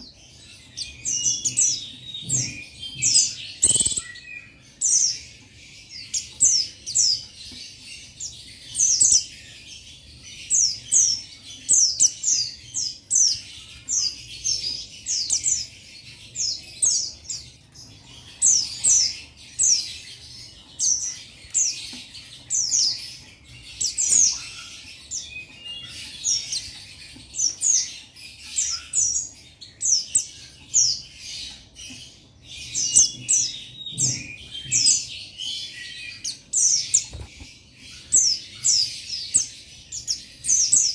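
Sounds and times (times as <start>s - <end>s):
bird singing rapid high chirps: 0.0s - 5.2s.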